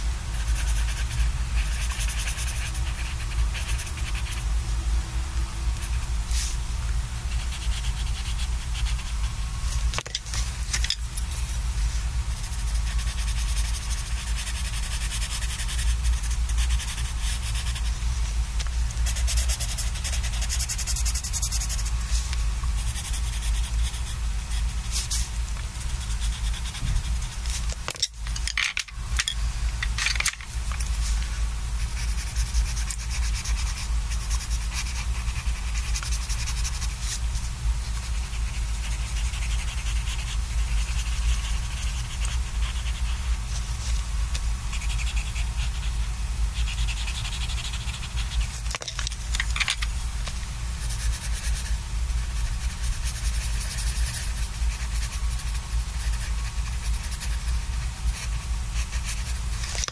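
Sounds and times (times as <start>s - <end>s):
pencil scratching on paper: 0.3s - 4.5s, 7.3s - 9.8s, 12.3s - 17.9s, 19.0s - 27.7s, 31.8s - 44.0s, 44.7s - 48.7s, 50.8s - 59.9s.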